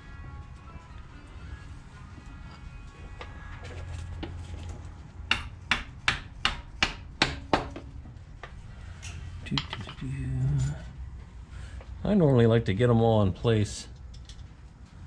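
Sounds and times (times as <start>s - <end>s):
hammer tapping on metal: 5.3s - 7.9s.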